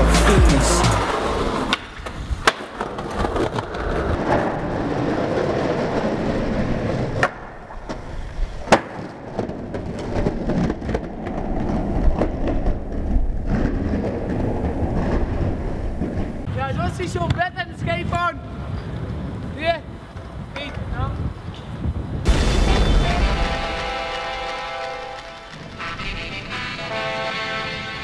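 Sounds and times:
skateboard wheels rolling on concrete: 0:00.0 - 0:22.3, 0:23.0 - 0:28.0
skateboard clacking on ground: 0:01.0 - 0:04.5, 0:07.1 - 0:14.4.

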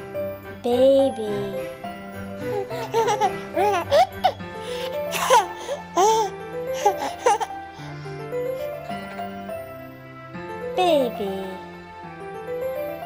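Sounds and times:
gentle background music: 0:00.0 - 0:13.0
baby squealing and giggling: 0:02.4 - 0:07.8.

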